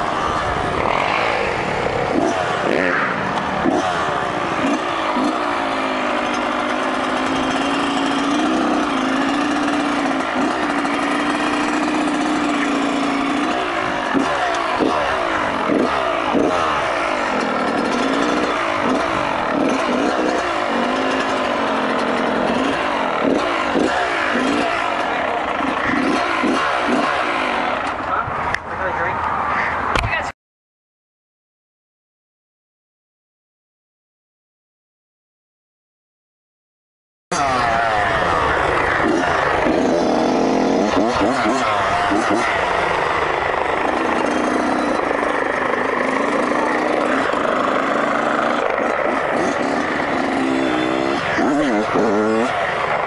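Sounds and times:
dirt bike engine revving: 0.0 - 28.2, 37.3 - 53.0.

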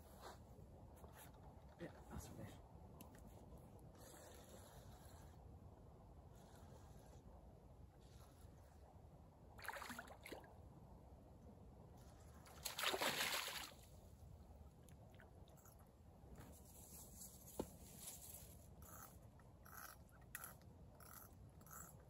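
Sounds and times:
fish splashing in water: 12.6 - 13.8.

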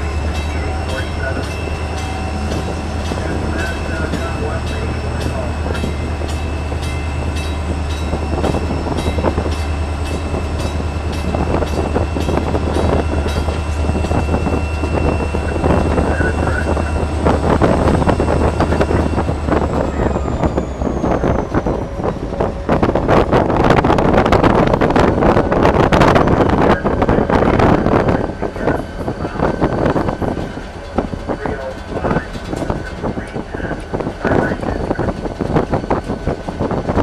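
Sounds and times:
high whine: 0.0 - 37.0
locomotive engine drone: 0.0 - 37.0
wind through cab window: 10.3 - 37.0.

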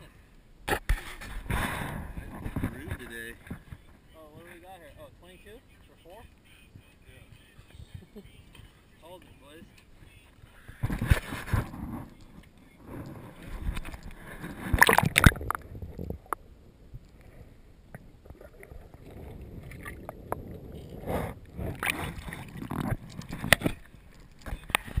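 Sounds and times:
muffled underwater gurgling: 1.5 - 16.4
water splashing and sloshing: 8.4 - 25.0.

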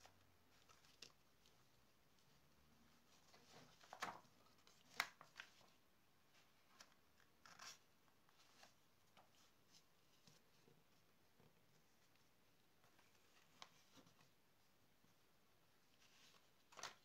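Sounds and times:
paper rustling: 0.1 - 2.3, 2.9 - 10.6, 15.9 - 17.0
light paper clicks: 3.3 - 5.7, 16.2 - 17.0.

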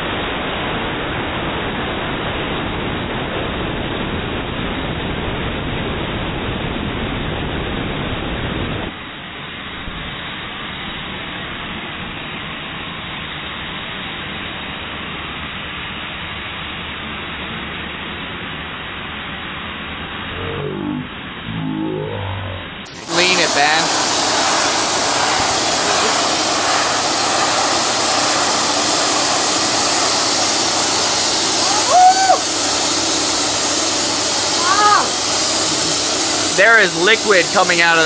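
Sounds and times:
short wavering tone: 20.3 - 23.1
compressed air hissing: 22.9 - 38.0.

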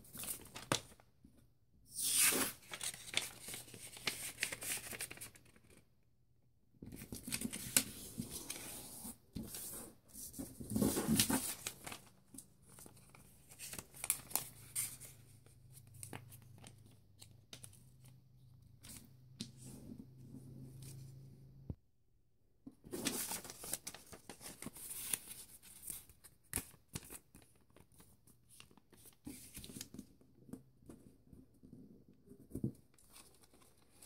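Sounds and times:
paper rustling and crackling: 2.1 - 5.8, 6.9 - 15.2, 22.9 - 30.1.

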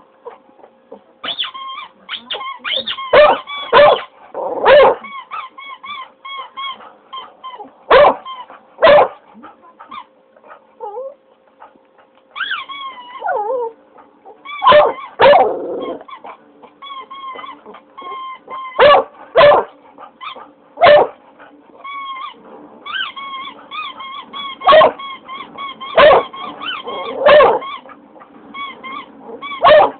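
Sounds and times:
squeaky toy squeaking: 1.2 - 4.1, 5.0 - 7.6, 12.4 - 13.3, 14.4 - 15.1, 16.8 - 18.8, 21.8 - 27.9, 28.5 - 29.9
dog howling and barking: 2.7 - 5.6, 7.6 - 9.2, 12.4 - 13.8, 14.5 - 16.3, 17.1 - 19.7, 20.4 - 21.2, 21.9 - 28.0, 28.7 - 29.9.

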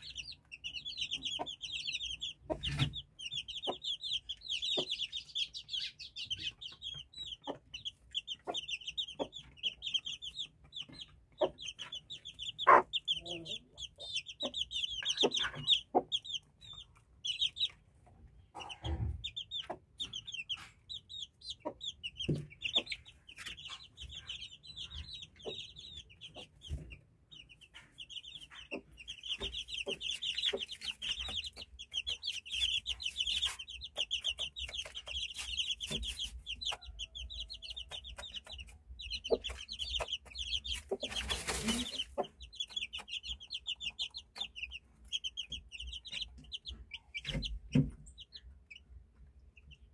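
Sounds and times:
chicks peeping: 0.0 - 49.9
hen clucking: 0.0 - 49.9
pecking on the floor: 19.2 - 49.3
rustling: 40.7 - 42.2.

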